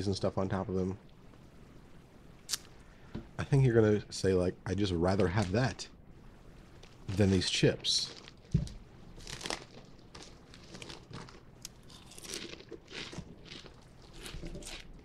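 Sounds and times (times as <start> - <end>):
crinkly chip bag handled: 6.8 - 14.9
chips being crunched: 9.2 - 15.0.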